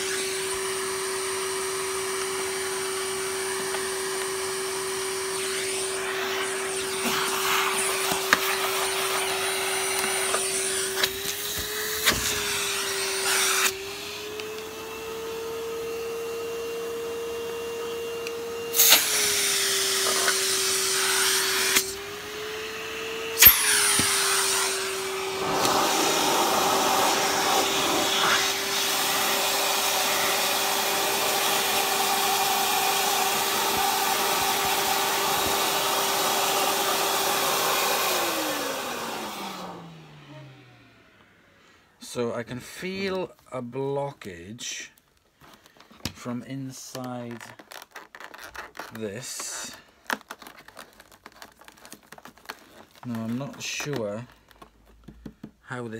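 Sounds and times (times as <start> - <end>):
vacuum cleaner motor whine: 0.0 - 42.2.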